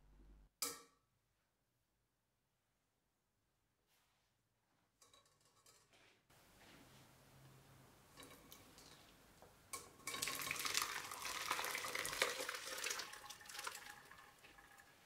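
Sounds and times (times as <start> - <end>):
curdled milk pouring and splashing: 10.0 - 15.0.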